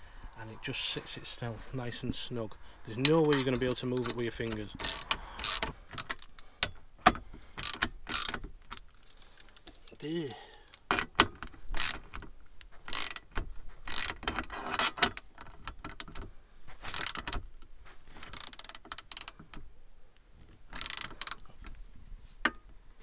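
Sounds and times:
ratchet spanner clicking: 0:04.5 - 0:06.8, 0:07.6 - 0:08.4, 0:11.8 - 0:12.1, 0:12.9 - 0:13.3, 0:13.9 - 0:14.2, 0:16.9 - 0:17.3, 0:18.4 - 0:19.4, 0:20.8 - 0:21.4.

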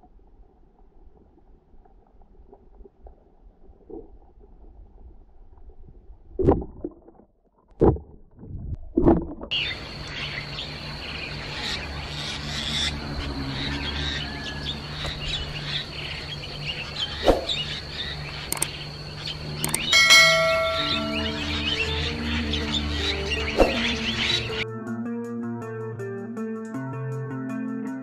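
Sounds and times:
muffled underwater thumps: 0:06.4 - 0:09.5
low hum: 0:08.0 - 0:24.6
birds chirping: 0:09.5 - 0:24.6
steady high-pitched tone: 0:19.6 - 0:23.6
pitched musical note: 0:19.9 - 0:22.4.

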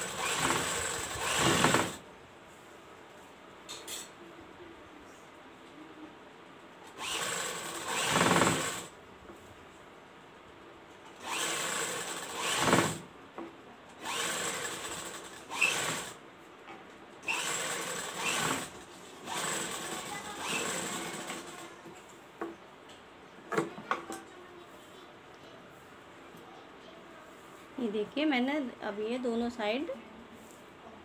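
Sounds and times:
sewing machine stitching: 0:00.0 - 0:02.0, 0:06.9 - 0:08.9, 0:11.2 - 0:13.1, 0:14.0 - 0:16.2, 0:17.2 - 0:21.7.

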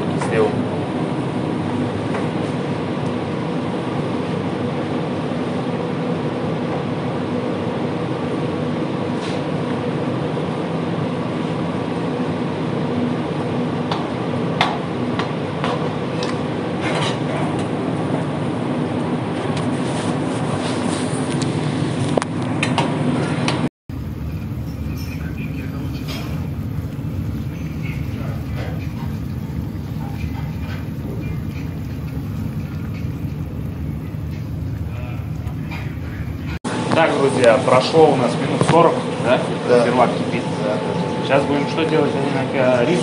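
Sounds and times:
kitchen equipment drone: 0:15.7 - 0:43.0.

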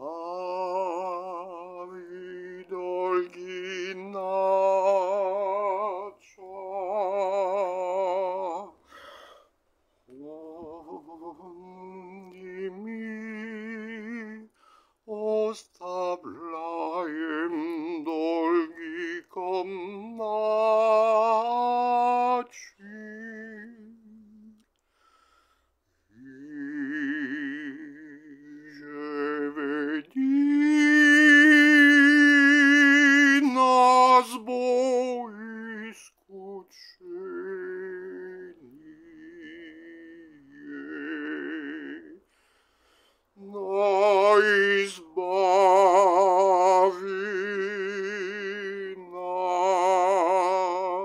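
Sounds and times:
person singing chant-like melody: 0:10.1 - 0:14.5.

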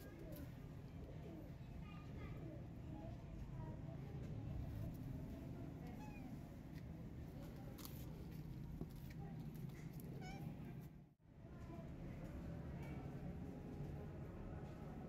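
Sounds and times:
cat meowing faintly: 0:05.8 - 0:06.4, 0:10.1 - 0:10.7.

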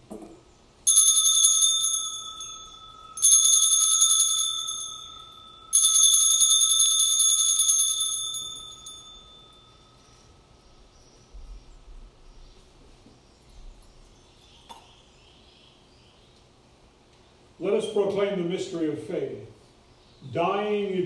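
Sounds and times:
altar bells jingling: 0:00.9 - 0:12.6.

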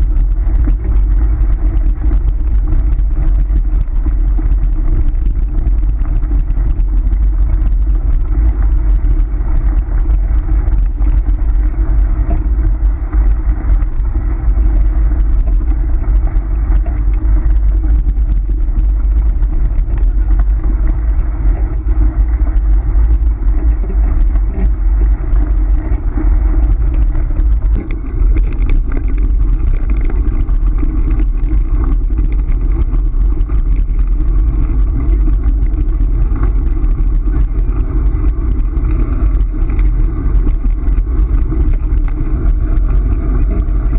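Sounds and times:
faint thin whine: 0:00.0 - 0:43.9
scooter rolling over gravel: 0:00.0 - 0:43.9.

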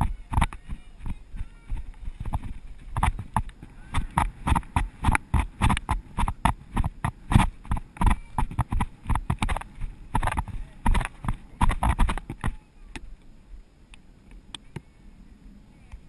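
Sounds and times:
horse hooves on dry dirt: 0:00.0 - 0:12.7.

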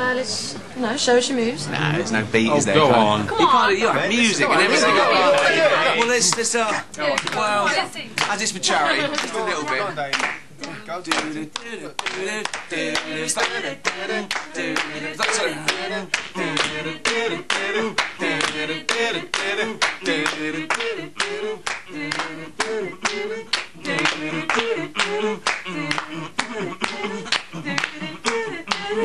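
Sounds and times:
upbeat song with singing: 0:03.2 - 0:29.0
hand claps in rhythm: 0:05.4 - 0:29.0.

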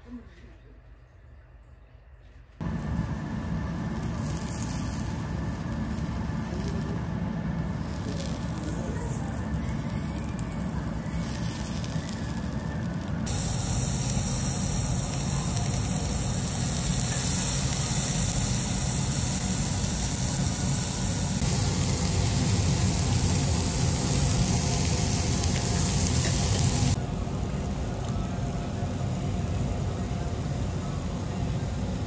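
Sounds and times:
meat sizzling on a grill plate: 0:04.0 - 0:07.0, 0:07.8 - 0:27.0.

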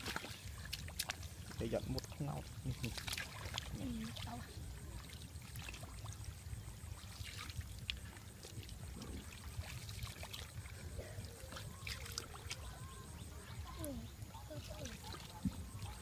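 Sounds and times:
hands splashing in muddy water: 0:00.0 - 0:04.4, 0:06.9 - 0:13.1.

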